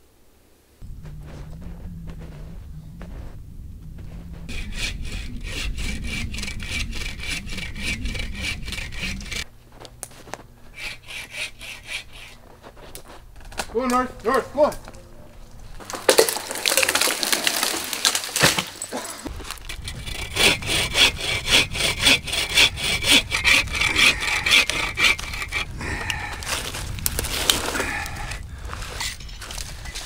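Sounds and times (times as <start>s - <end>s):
hand saw cutting log: 4.5s - 9.5s, 10.6s - 13.1s, 19.7s - 25.7s.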